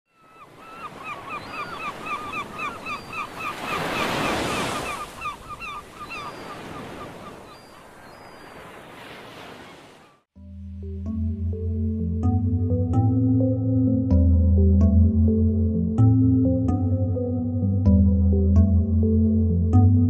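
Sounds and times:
rapid hooked bird calls: 0:00.2 - 0:08.8.

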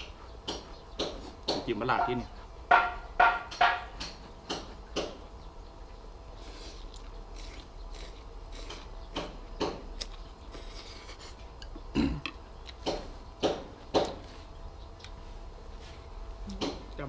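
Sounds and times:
chewing: 0:05.8 - 0:09.1, 0:09.8 - 0:12.9.

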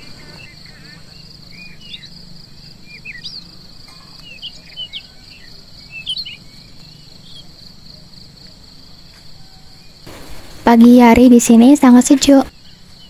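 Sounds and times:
birds chirping: 0:00.0 - 0:09.1
insects droning: 0:00.0 - 0:13.0.

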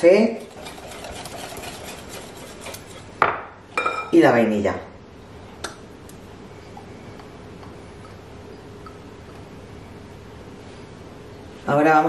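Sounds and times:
faint steady hum: 0:00.0 - 0:12.0
whisk ticking on glass bowl: 0:00.4 - 0:03.0.

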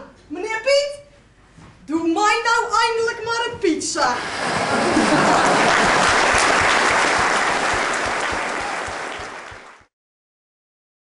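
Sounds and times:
audience applauding: 0:04.2 - 0:09.9.

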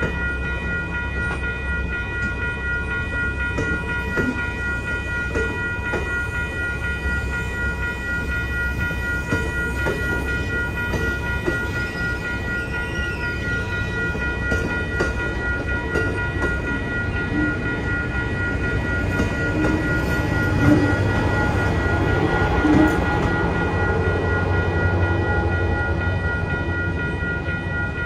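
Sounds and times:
crossing bells ringing: 0:00.0 - 0:28.0
train cars rumbling: 0:00.0 - 0:28.0.

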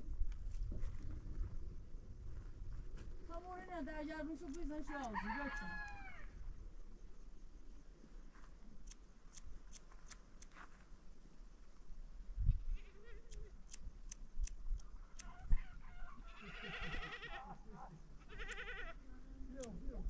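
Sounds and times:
livestock bleating: 0:15.4 - 0:17.6, 0:18.2 - 0:19.0.

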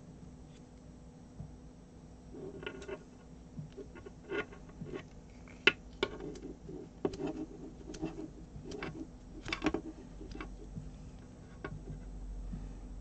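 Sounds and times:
fingers handling cable wires: 0:02.4 - 0:12.1.

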